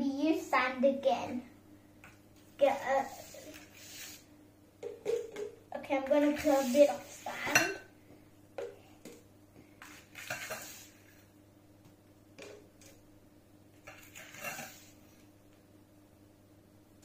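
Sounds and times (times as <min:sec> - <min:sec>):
metal spoon scraping steel bowl: 0:09.9 - 0:11.0, 0:13.9 - 0:15.0.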